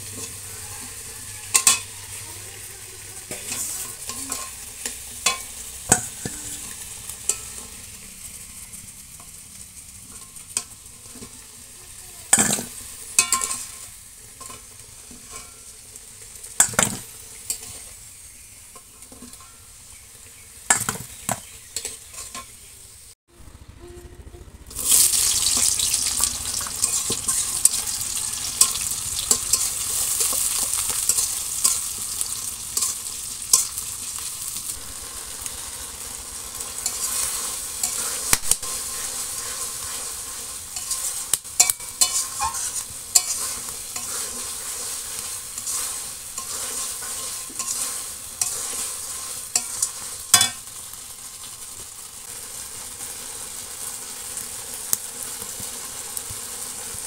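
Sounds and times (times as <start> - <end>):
metal spatula scraping pan: 0.0 - 9.4, 12.3 - 15.8, 20.7 - 22.6, 24.9 - 35.0, 36.6 - 50.8
onions sizzling in hot oil: 0.0 - 23.2, 24.7 - 57.0.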